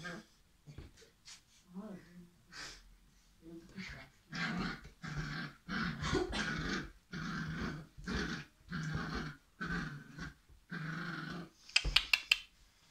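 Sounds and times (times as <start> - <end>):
puppy growling: 3.8 - 11.6.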